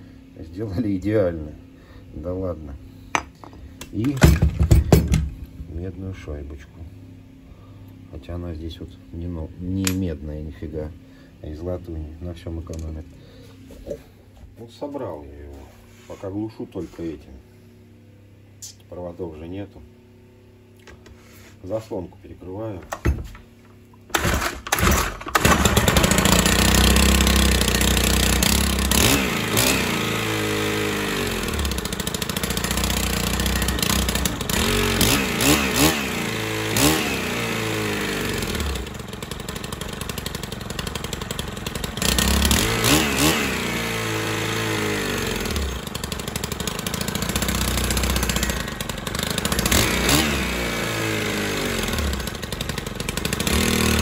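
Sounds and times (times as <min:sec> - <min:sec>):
brushcutter engine revving and idling: 0:24.2 - 0:54.0.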